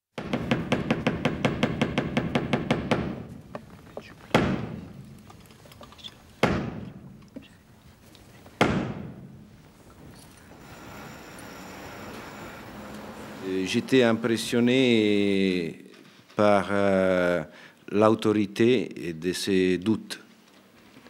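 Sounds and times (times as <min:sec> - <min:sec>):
heavy echoing blows: 0:08.6 - 0:15.9.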